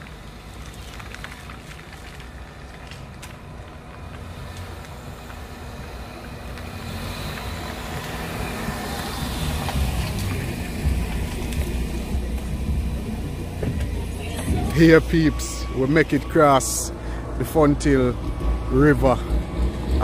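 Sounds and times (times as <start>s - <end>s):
car engine approaching: 0.0s - 20.0s
tyres on wet road: 0.0s - 20.0s.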